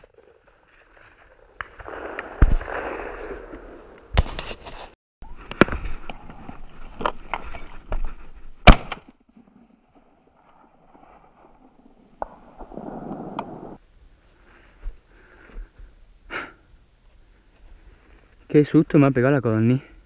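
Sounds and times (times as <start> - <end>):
shotgun shots: 1.6 - 4.2, 8.6 - 9.0.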